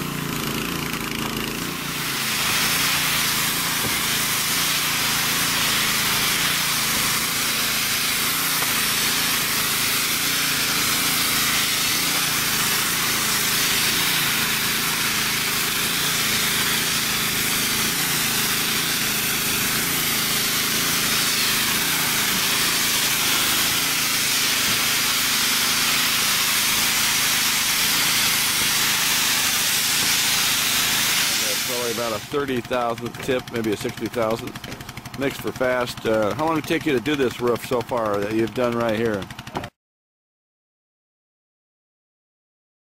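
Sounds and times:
spray gun hissing: 0.0 - 38.8
machine running: 0.0 - 39.7.

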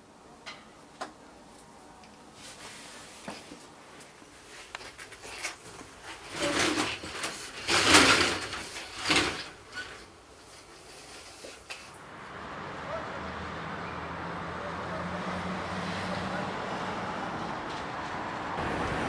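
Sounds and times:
roller shutter hauled up: 5.2 - 12.0.

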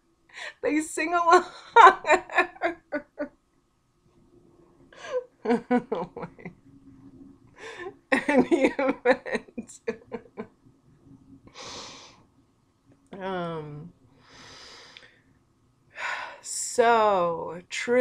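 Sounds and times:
woman laughing hard: 1.3 - 3.3, 5.0 - 6.5, 7.6 - 10.4
breathy gasps: 7.6 - 8.0.

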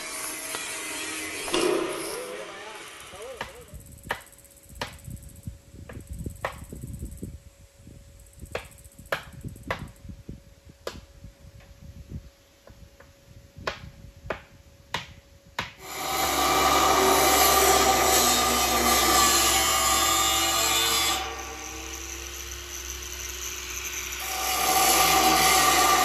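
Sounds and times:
loud power tool running: 15.8 - 26.0.

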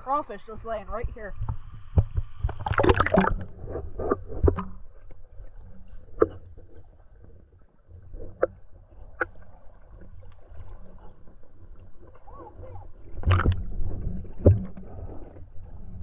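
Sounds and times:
muffled underwater stream rumble: 0.0 - 16.0
sharp underwater knocks: 1.0 - 4.8, 13.2 - 14.8.

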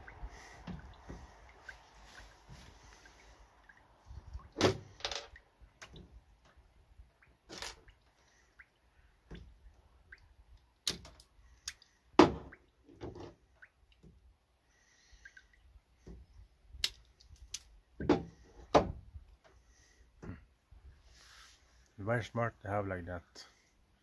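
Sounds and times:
thunk on boat deck: 12.2 - 13.3, 18.0 - 19.0.

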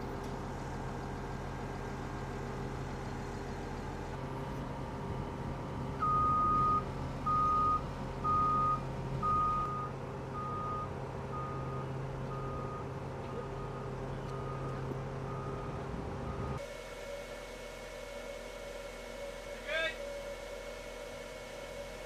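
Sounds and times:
engine humming: 0.0 - 22.0
reverse warning beeps: 6.0 - 16.6.

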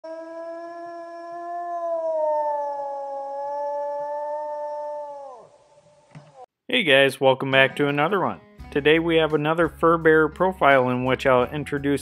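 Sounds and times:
wolf howling: 0.0 - 6.5.

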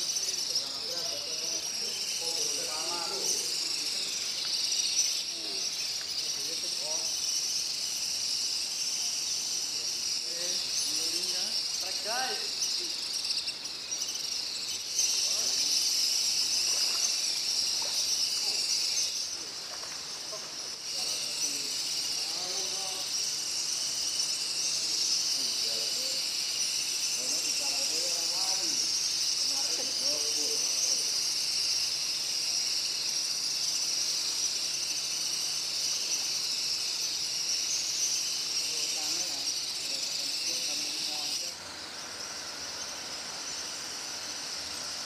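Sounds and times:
insects chirring: 0.0 - 45.0.

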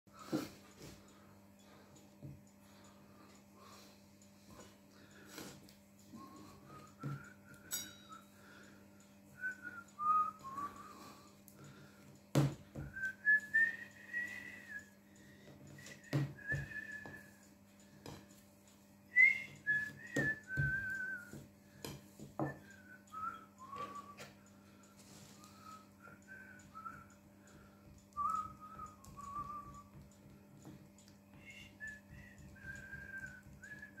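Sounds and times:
person whistling a tune: 6.1 - 8.7, 9.3 - 11.8, 12.7 - 17.5, 19.1 - 21.5, 22.4 - 30.0, 30.6 - 34.0.

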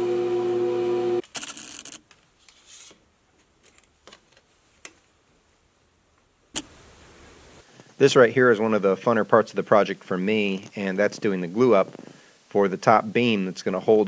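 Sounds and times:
tape measure blade rustle: 1.2 - 3.0.

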